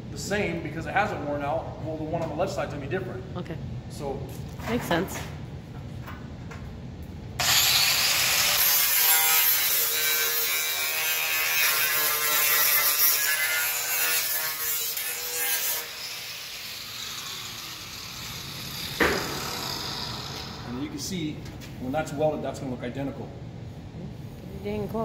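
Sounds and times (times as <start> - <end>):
angle grinder grinding steel: 7.4 - 20.8
sharp knock: 19.0 - 19.8.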